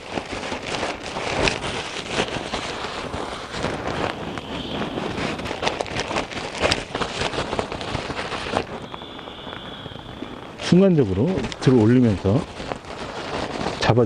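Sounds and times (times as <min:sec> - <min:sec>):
fabric bag rustling and flapping: 0:00.0 - 0:14.0
sharp crackles: 0:00.0 - 0:14.0.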